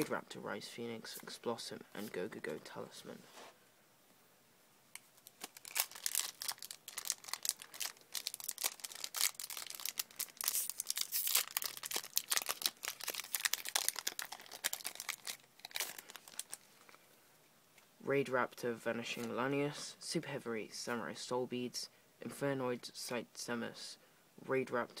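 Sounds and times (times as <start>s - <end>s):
foil wrapper crinkling and tearing: 5.2s - 17.0s.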